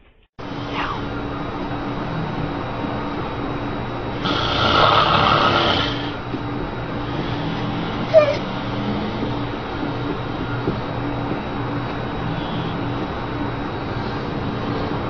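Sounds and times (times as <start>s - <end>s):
low steady hum: 0.0s - 15.0s
man snoring: 4.2s - 6.2s.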